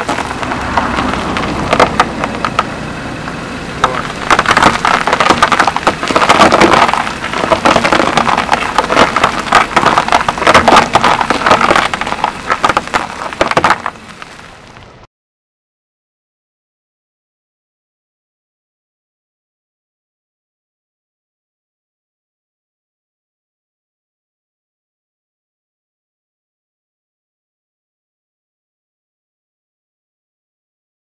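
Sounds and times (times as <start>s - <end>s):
sugar cubes crunching under tyre: 0.0s - 2.7s, 3.8s - 14.8s.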